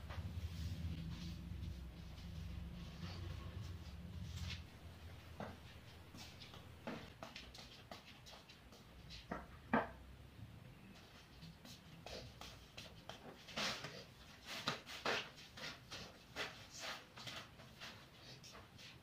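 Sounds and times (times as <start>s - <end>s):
broom sweeping concrete floor: 0.2s - 4.8s, 12.3s - 19.0s.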